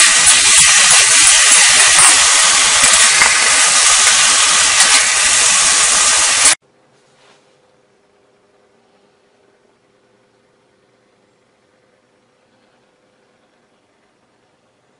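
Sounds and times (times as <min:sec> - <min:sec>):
food sizzling in a wok: 0:00.0 - 0:06.6.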